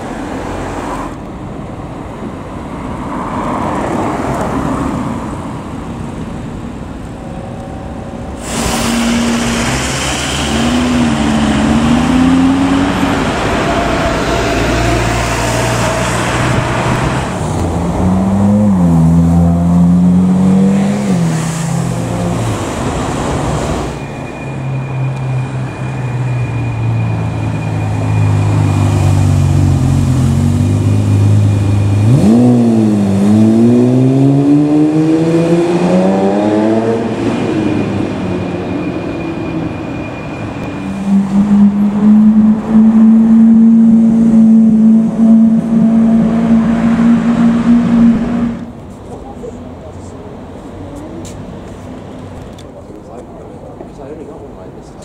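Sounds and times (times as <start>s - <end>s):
car engines revving in traffic: 0.0s - 55.0s
sports car engine accelerating: 28.4s - 38.3s, 40.9s - 48.8s.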